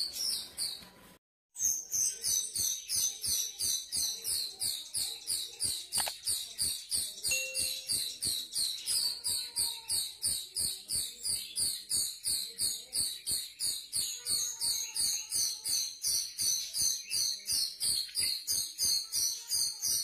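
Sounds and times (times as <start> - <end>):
bird chirping: 0.0 - 1.0, 1.6 - 20.0
faint musical tones: 7.3 - 8.4.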